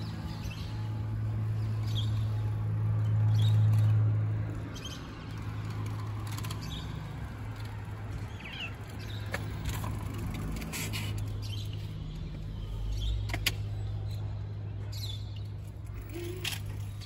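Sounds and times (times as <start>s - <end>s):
traffic engine hum: 0.0s - 17.0s
vehicle passing: 1.2s - 12.3s.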